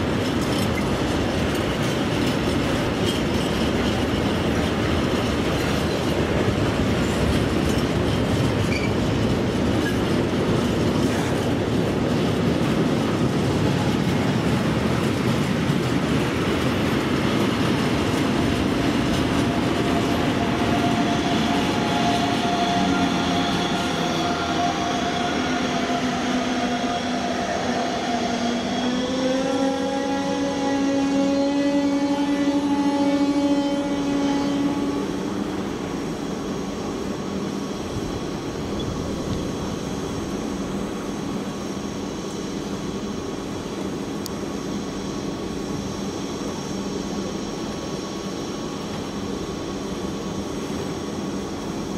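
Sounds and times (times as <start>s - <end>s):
freight train clattering: 0.0s - 26.2s
electric locomotive whining: 0.0s - 51.9s.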